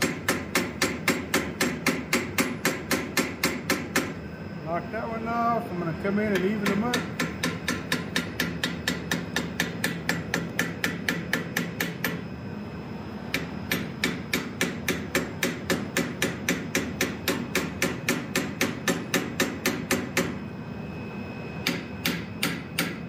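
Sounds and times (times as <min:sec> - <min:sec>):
hammer striking steel: 0:00.0 - 0:04.2, 0:06.4 - 0:12.2, 0:13.3 - 0:20.4, 0:21.6 - 0:23.0.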